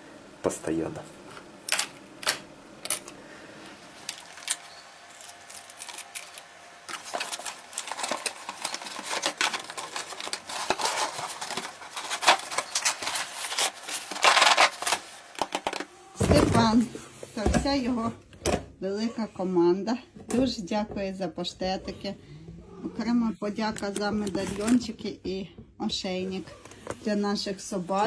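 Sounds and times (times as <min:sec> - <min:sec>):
cardboard box rustling and scraping: 0:06.9 - 0:15.1.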